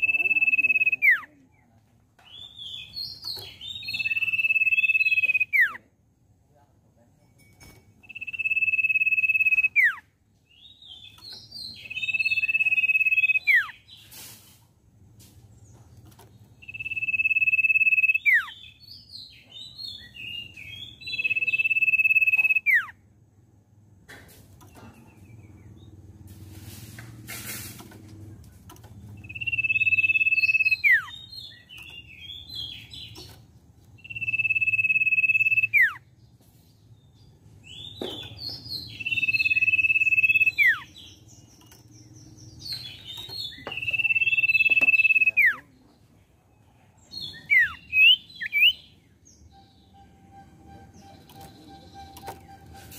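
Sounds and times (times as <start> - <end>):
bird whistling with downward slur: 8.1 - 10.0, 16.7 - 18.5, 21.4 - 22.9, 29.2 - 31.1, 34.0 - 36.0, 39.0 - 40.9
bird chattering notes: 29.2 - 31.2, 38.3 - 42.0, 42.6 - 45.6.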